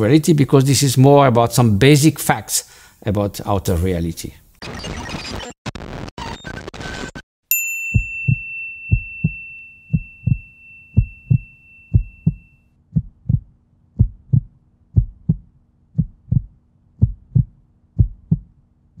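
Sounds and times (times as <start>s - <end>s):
high bell-like ring: 7.5s - 12.6s
heartbeat thumps: 11.0s - 18.6s.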